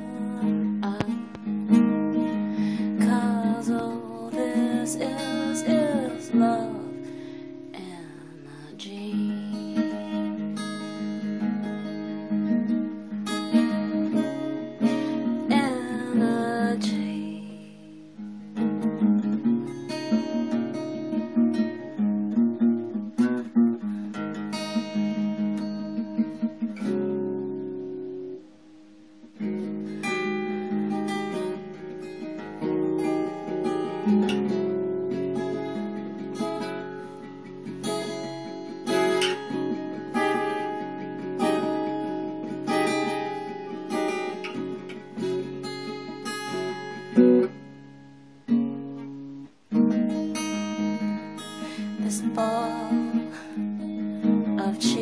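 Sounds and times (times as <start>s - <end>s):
acoustic guitar strumming: 0.0s - 55.0s.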